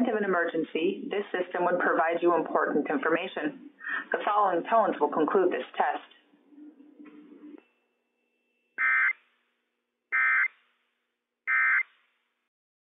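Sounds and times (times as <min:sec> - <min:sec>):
emergency alert data tones: 0:08.8 - 0:09.2, 0:10.1 - 0:10.6, 0:11.5 - 0:12.0.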